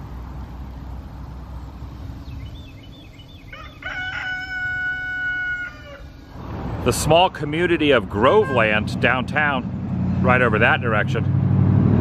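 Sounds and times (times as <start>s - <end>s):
rooster crowing: 3.4s - 6.2s.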